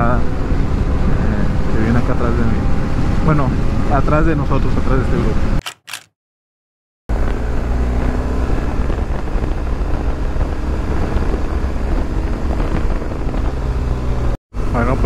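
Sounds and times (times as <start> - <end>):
wind rushing over microphone: 8.1 - 15.0.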